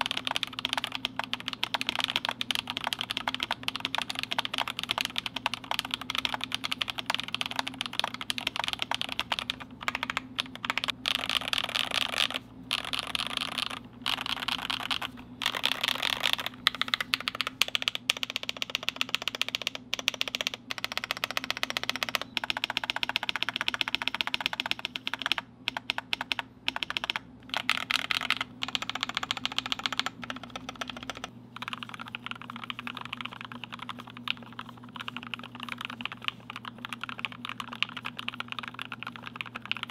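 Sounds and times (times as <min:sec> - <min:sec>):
mechanical keyboard typing: 0:00.0 - 0:39.9.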